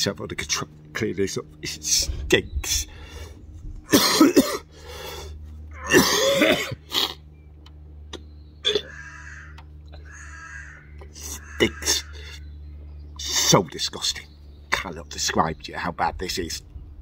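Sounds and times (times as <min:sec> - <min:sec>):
man coughing: 0:03.9 - 0:04.8, 0:05.8 - 0:07.2.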